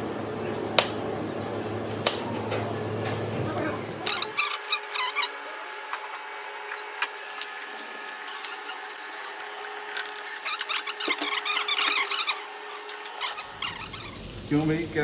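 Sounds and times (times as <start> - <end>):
kitchen equipment hum: 0.0 - 15.0
onion rings frying in oil: 4.0 - 15.0.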